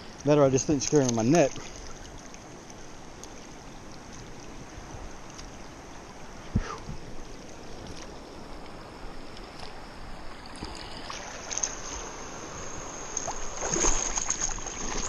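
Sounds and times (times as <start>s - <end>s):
water splashing around legs: 0.0s - 3.4s, 10.4s - 12.1s, 13.1s - 15.0s
flowing water rushing: 0.0s - 15.0s.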